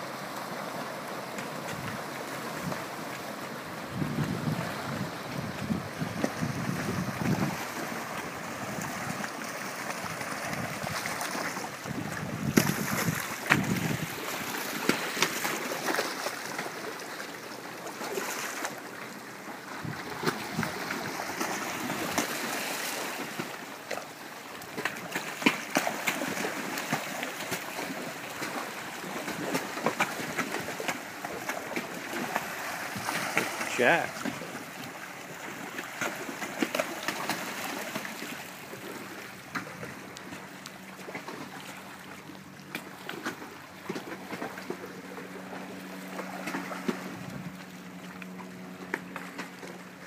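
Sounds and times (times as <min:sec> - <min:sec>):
wind rumble on microphone: 0:03.8 - 0:09.2, 0:11.8 - 0:14.3, 0:19.8 - 0:21.2, 0:47.1 - 0:47.6
fish splashing in water: 0:04.3 - 0:50.0.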